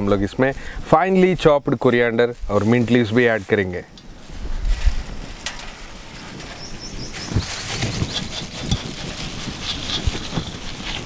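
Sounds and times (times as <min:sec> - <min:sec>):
outdoor ambient hum: 0:03.8 - 0:11.0
birds chirping: 0:06.0 - 0:08.4.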